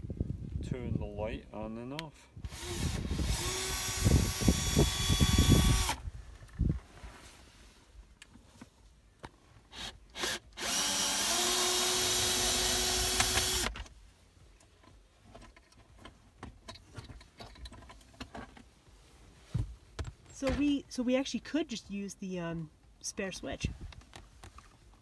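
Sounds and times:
power drill spinning: 2.5s - 6.0s, 9.7s - 13.8s.

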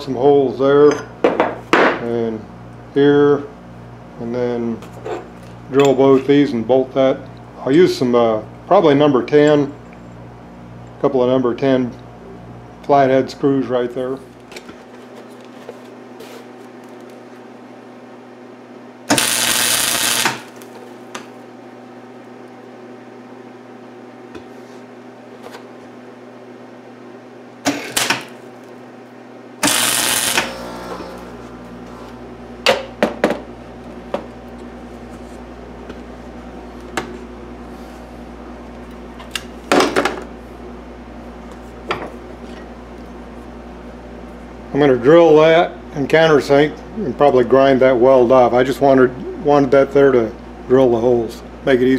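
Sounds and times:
low steady hum: 16.5s - 51.9s
welding arc noise: 19.0s - 21.3s, 29.6s - 32.3s.

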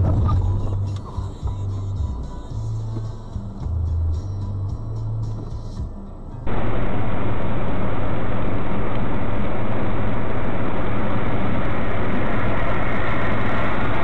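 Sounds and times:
car engine hum: 0.0s - 14.0s
tyre and road noise: 0.0s - 14.0s.

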